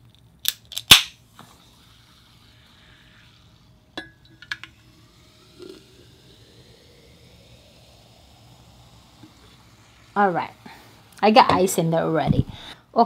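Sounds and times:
can popping open: 0.1s - 1.5s, 4.0s - 4.8s
cola pouring and fizzing: 1.2s - 11.8s.

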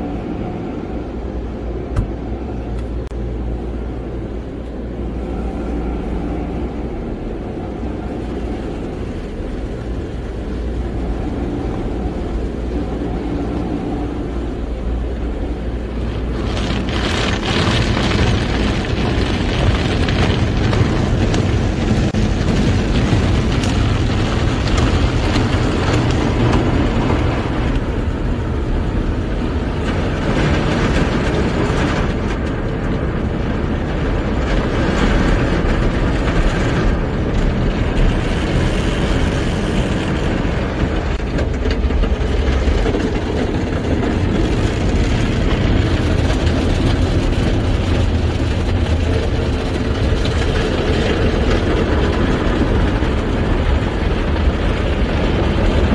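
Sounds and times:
car wash water spray: 0.0s - 55.9s
wash brushes on car body: 15.2s - 32.0s.

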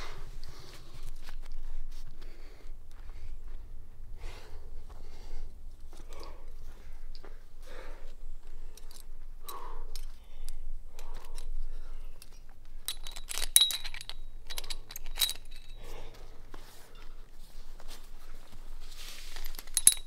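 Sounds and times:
man breathing hard: 0.0s - 12.8s, 15.4s - 17.4s
carabiners clinking: 8.5s - 17.3s, 18.0s - 20.0s.

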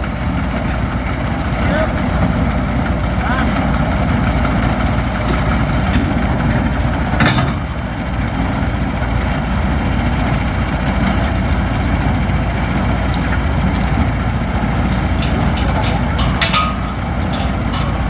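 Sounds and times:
diesel engine idling: 0.0s - 18.0s
metallic clank: 14.9s - 18.0s.

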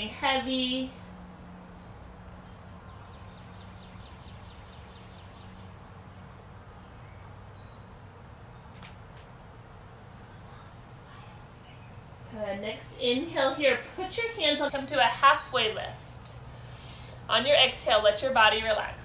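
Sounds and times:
steady low hum: 0.0s - 19.0s
songbirds trilling and chirping: 0.9s - 15.0s.

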